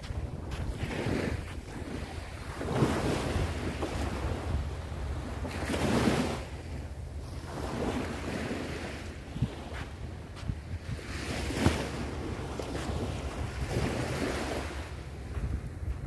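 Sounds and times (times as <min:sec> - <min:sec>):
surf washing on sandy beach: 0:00.0 - 0:16.0
wind buffeting microphone: 0:00.0 - 0:16.0.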